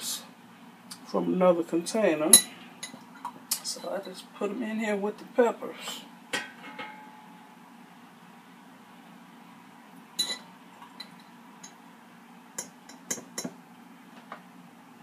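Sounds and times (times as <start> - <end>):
low steady hum: 0.0 - 15.0
fork clinking against dishes: 10.2 - 11.8.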